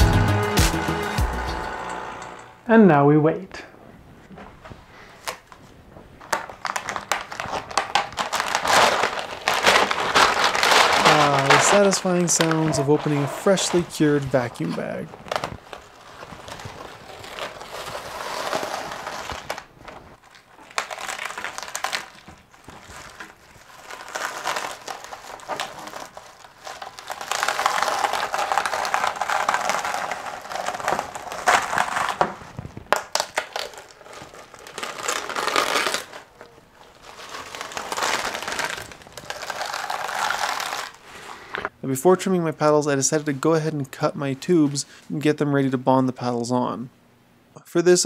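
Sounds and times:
plastic film crinkling: 4.6 - 41.7.

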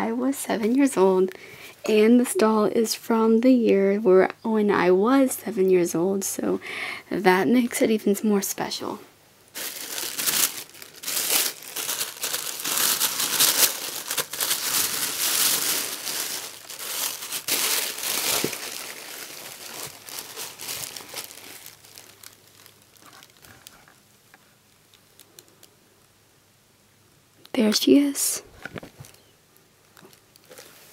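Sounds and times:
tissue paper crinkling: 9.5 - 24.0, 29.9 - 30.9.

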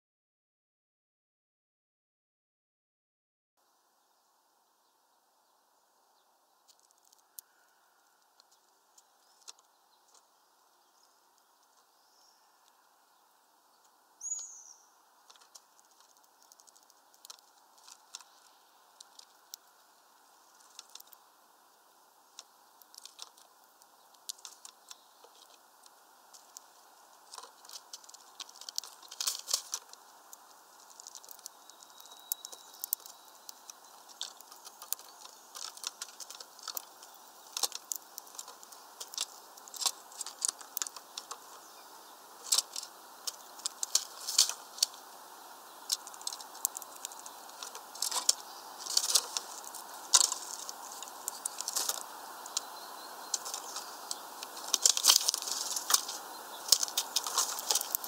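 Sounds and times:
beaks pecking seeds: 4.8 - 58.0
wing flapping: 45.8 - 58.0.

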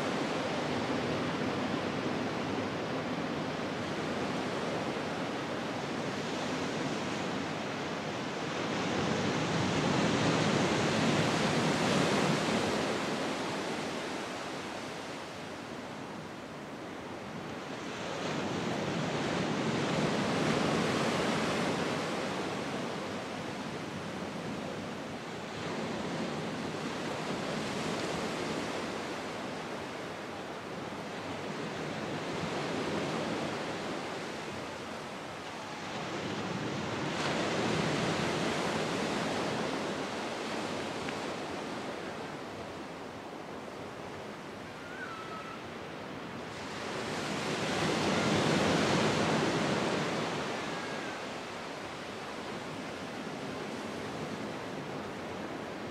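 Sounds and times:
surf breaking on a beach: 45.5 - 55.9.

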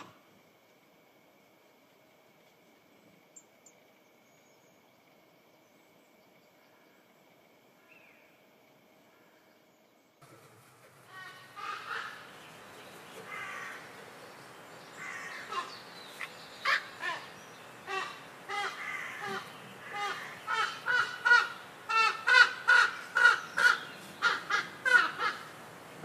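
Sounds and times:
crow cawing: 11.1 - 12.3, 13.3 - 13.9, 15.0 - 15.8, 16.6 - 17.3, 17.9 - 25.5.

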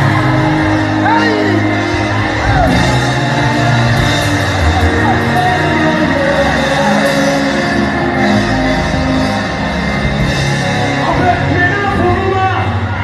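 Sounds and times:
drum kit: 0.0 - 12.9
worship band music: 0.0 - 13.0.

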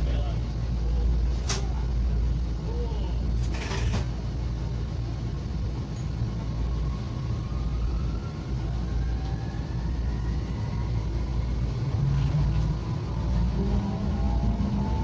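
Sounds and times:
low train running rumble: 0.0 - 15.0
electric train motor whine rising: 5.9 - 15.0.

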